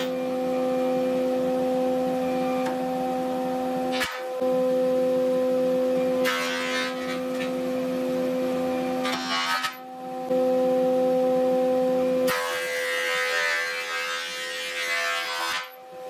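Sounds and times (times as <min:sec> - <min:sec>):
planer cutting wood: 0:06.0 - 0:09.8, 0:12.3 - 0:15.8.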